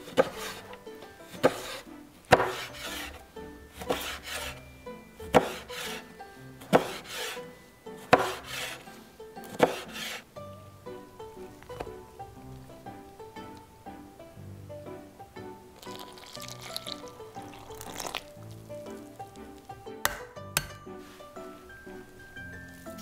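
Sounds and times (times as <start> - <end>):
knife scraping through squid: 0.0 - 0.7, 1.3 - 3.2, 3.8 - 4.6, 5.3 - 6.1, 6.7 - 10.3
soft background music: 0.0 - 23.0.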